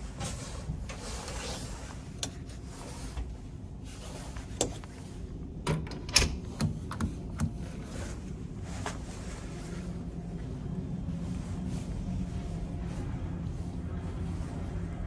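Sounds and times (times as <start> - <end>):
ship low hum: 0.0 - 15.0
door latch and handle clicks: 5.7 - 7.6.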